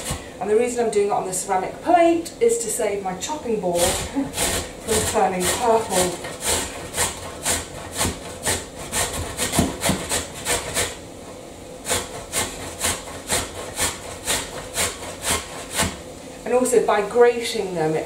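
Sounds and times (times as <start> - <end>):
beetroot grated on metal grater: 0.0 - 0.2, 3.2 - 11.0, 11.8 - 16.1.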